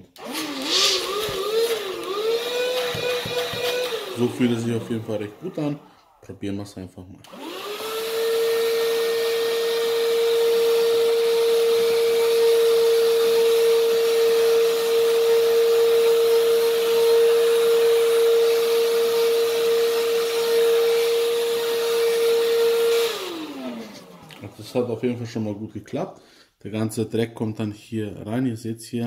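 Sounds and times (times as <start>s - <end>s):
handheld vacuum cleaner running: 0.0s - 6.4s, 7.2s - 25.2s
motor spinning down: 0.2s - 6.3s, 7.2s - 13.0s.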